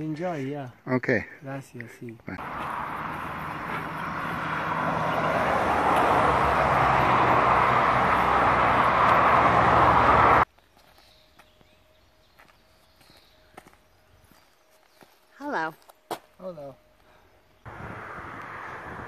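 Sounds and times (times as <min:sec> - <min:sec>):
highway traffic rushing: 0:02.4 - 0:10.5, 0:17.6 - 0:19.0.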